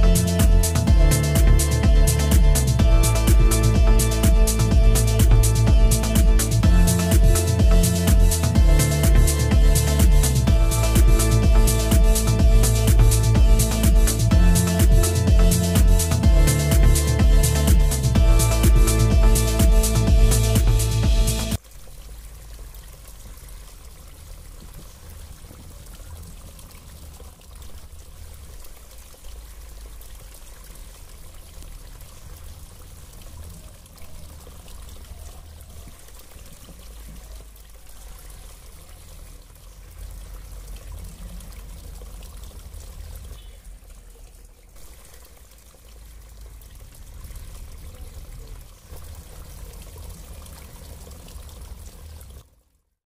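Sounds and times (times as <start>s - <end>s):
water trickling down rocks: 21.4s - 53.0s.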